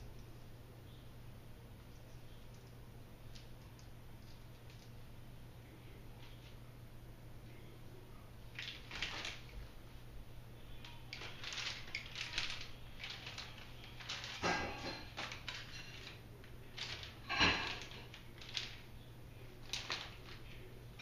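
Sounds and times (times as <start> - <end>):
plastic wrap crumpling loudly: 8.5 - 9.6, 11.1 - 18.9, 19.5 - 21.0
plastic wrap crinkling: 8.5 - 9.8, 10.6 - 21.0.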